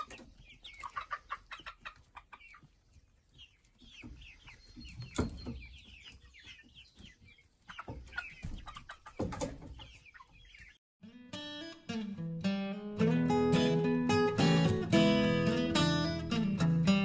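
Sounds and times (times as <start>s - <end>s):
chicks clucking and peeping: 0.0s - 10.8s.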